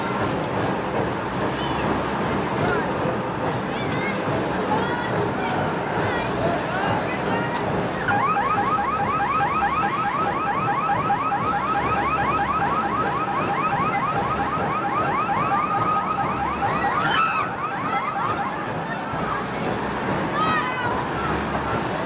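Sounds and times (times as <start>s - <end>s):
electronic warbling alarm siren: 8.1s - 18.8s.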